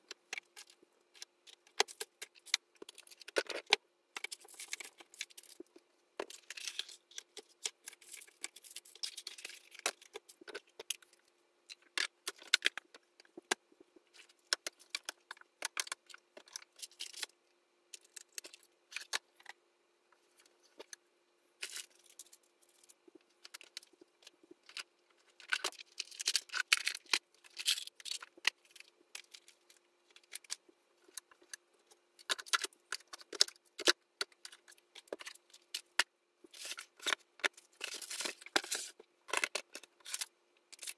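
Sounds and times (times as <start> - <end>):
faint steady hum: 0.0 - 40.9
small objects clattering: 32.2 - 40.9.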